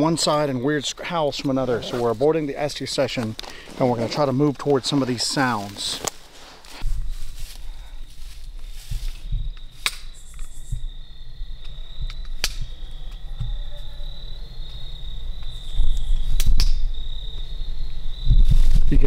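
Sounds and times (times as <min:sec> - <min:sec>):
crickets trilling: 0:00.0 - 0:19.0
footsteps in undergrowth: 0:01.4 - 0:13.9
sharp snaps: 0:09.7 - 0:10.5, 0:11.6 - 0:13.2, 0:15.9 - 0:16.9.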